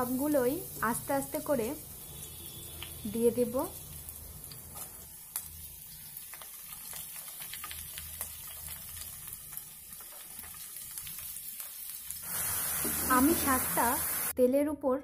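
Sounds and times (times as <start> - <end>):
vegetables sizzling in hot oil: 0.0 - 14.4
oil popping and crackling: 2.1 - 13.5.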